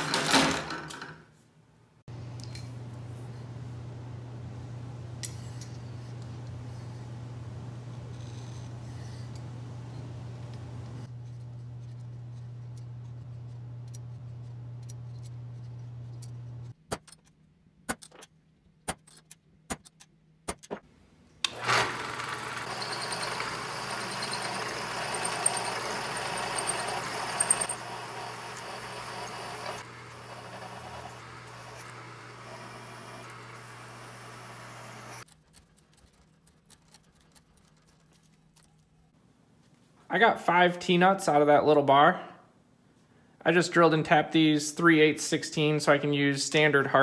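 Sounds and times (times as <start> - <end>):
drill press drilling steel: 21.5 - 35.2.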